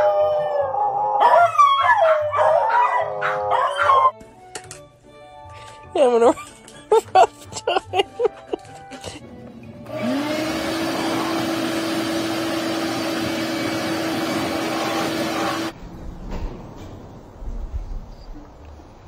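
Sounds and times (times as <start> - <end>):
electric fan motor whine: 9.2 - 16.2.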